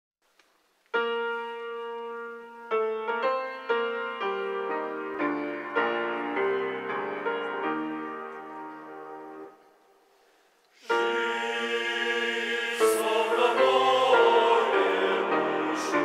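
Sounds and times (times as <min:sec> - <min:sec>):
slow piano playing: 0:00.9 - 0:09.8.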